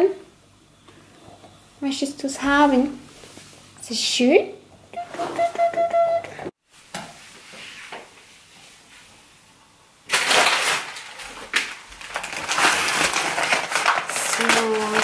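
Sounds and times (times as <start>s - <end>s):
paper bag rustling and crinkling: 10.1s - 15.0s.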